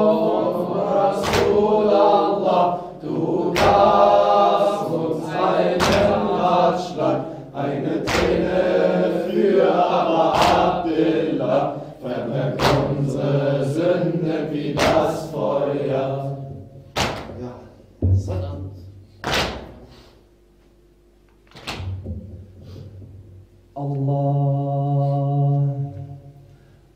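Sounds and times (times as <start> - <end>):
voices chanting in chorus: 0.0 - 17.2
chest-beating slaps: 1.2 - 1.6, 3.5 - 4.0, 5.7 - 6.3, 8.0 - 8.5, 10.3 - 10.8, 12.5 - 13.0, 14.7 - 15.2, 16.9 - 17.4, 19.2 - 19.9.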